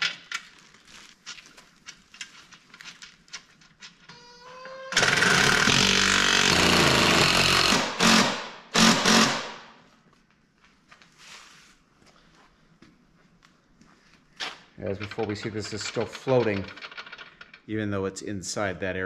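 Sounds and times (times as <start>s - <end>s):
impact driver whining and hammering: 4.9s - 9.7s
metal parts clicking: 14.9s - 17.7s.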